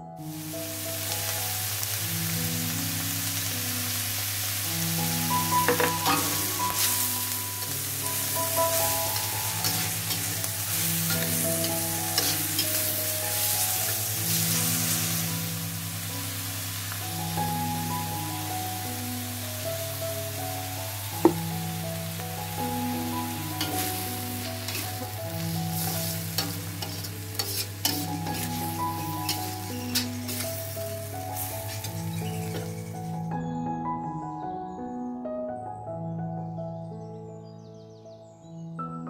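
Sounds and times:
greens sizzling in a wok: 0.2 - 33.3
metal spatula scraping pan: 11.0 - 12.8, 23.6 - 25.2, 25.8 - 30.7.

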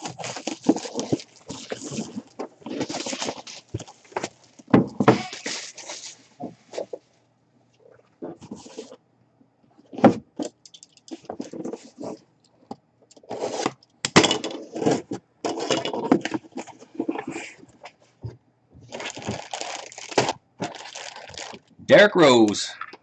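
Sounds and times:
cardboard boxes scraping: 0.0 - 4.4, 5.0 - 7.0, 13.2 - 13.7.

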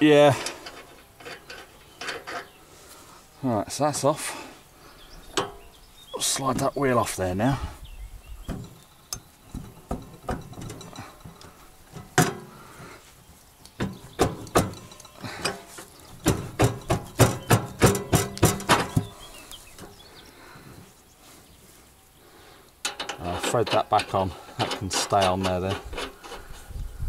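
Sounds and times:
metal clinks and knocks: 8.4 - 12.6, 13.8 - 19.2, 22.8 - 26.6.

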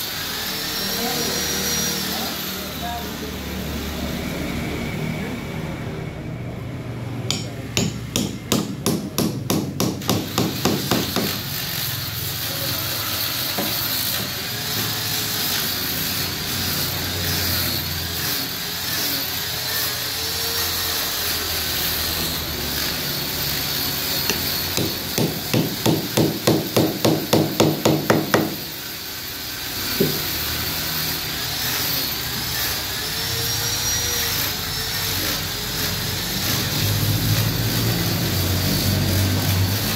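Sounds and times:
hammer blows on wood: 24.3 - 28.6.

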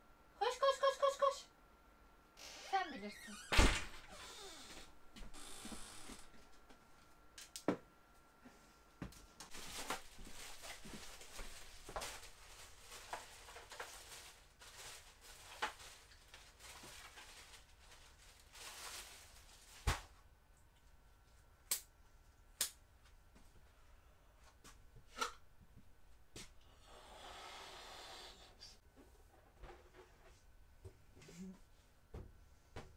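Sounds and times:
rustling: 9.5 - 20.2.

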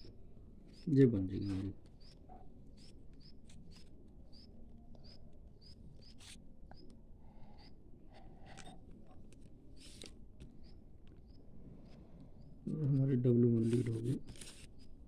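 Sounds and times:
small bird chirping: 0.0 - 9.2, 9.8 - 15.0
pen scratching on paper: 0.7 - 6.4, 12.7 - 14.9.

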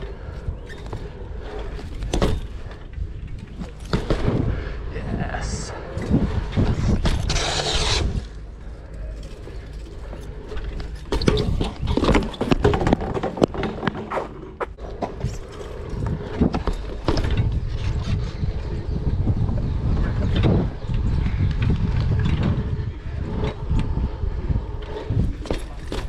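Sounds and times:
bike tyres rumbling on concrete: 0.0 - 4.9, 5.5 - 26.0
bike frame knocks and rattles: 0.3 - 4.6, 9.0 - 18.0, 24.9 - 26.0.

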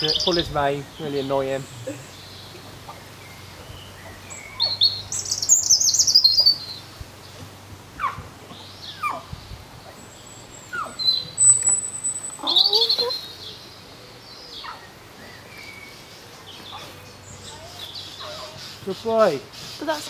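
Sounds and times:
songbird warbling chirps: 0.0 - 20.0
bird calls sliding downward: 10.7 - 13.6.

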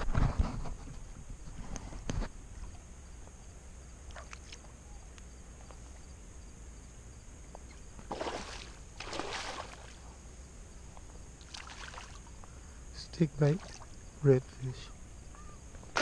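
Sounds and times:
faint steady hiss: 0.6 - 16.0
water splashes: 8.1 - 10.0, 11.4 - 12.4, 13.4 - 14.0.

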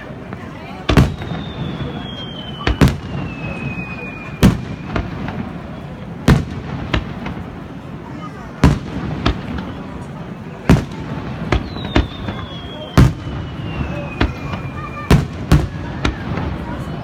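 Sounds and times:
fireworks bursting bangs: 0.0 - 17.0
faint falling whistle: 1.1 - 5.1, 11.6 - 15.3.

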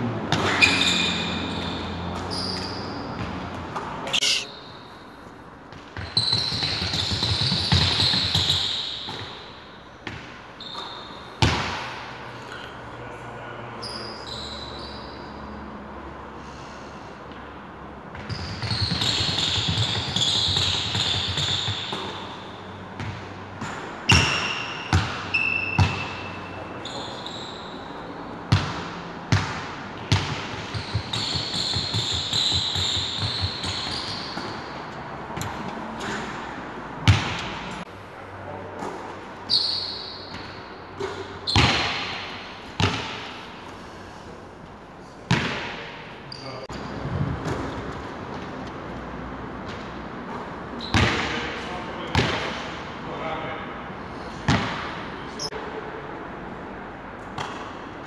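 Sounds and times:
sneakers squeaking on floor: 0.3 - 11.9, 13.8 - 15.6, 18.1 - 37.6, 38.8 - 43.7, 45.3 - 48.0, 49.6 - 52.7, 54.0 - 55.6
basketballs bouncing on hardwood: 5.7 - 9.4, 11.4 - 11.8, 18.1 - 22.4, 28.5 - 34.7, 37.0 - 37.6, 40.3 - 43.4, 45.3 - 45.9, 50.9 - 51.4, 52.1 - 52.5, 54.5 - 54.8.

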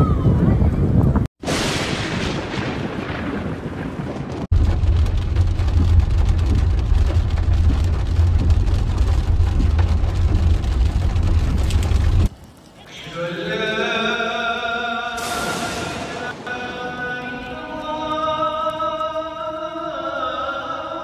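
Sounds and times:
thunderclap rumbling: 0.0 - 12.3, 15.2 - 18.3
rain hiss: 15.2 - 17.6.

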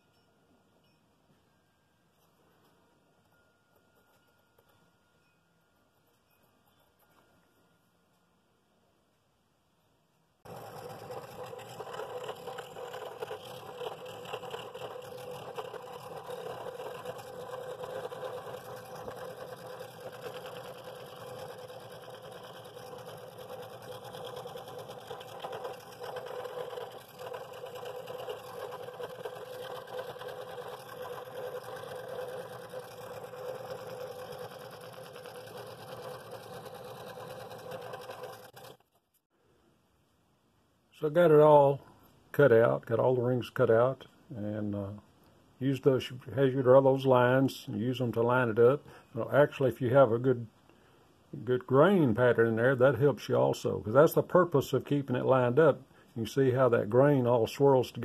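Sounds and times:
scroll saw cutting wood: 10.4 - 39.0.

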